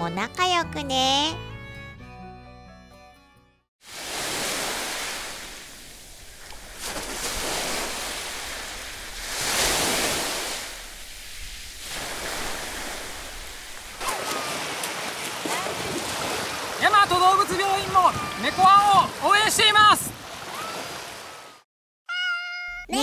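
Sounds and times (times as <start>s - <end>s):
sea surf washing onto beach: 3.8s - 21.5s
swimmer splashing through shallow water: 3.8s - 21.5s.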